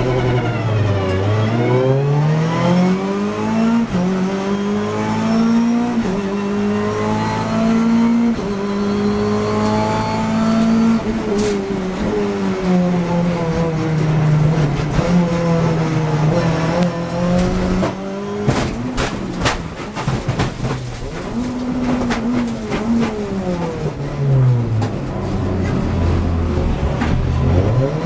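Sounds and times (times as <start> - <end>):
race car engine at high revs: 0.0 - 28.0
car crash knocks and bangs: 17.2 - 24.0.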